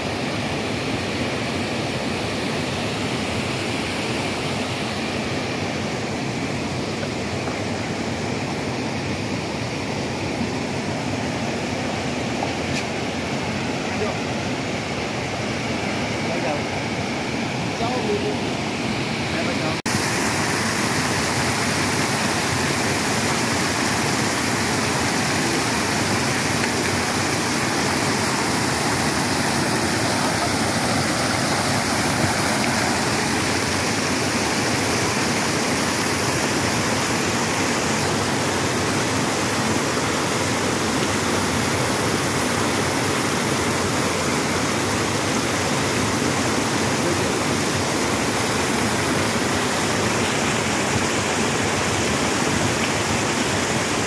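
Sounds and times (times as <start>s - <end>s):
water pouring over rock ledge: 19.9s - 54.0s.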